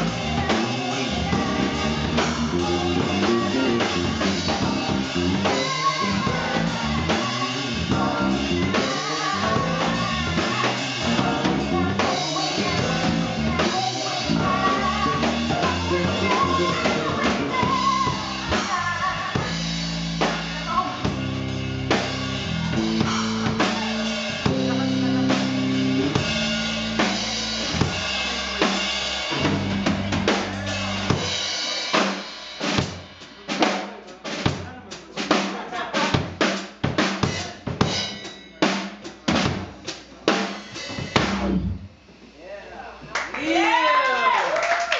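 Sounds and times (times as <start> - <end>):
drum hits: 0.0 - 18.8, 19.4 - 33.7, 36.2 - 42.2
soul band playing: 0.0 - 34.4, 36.2 - 41.9
woman singing wordless lines: 0.2 - 19.7.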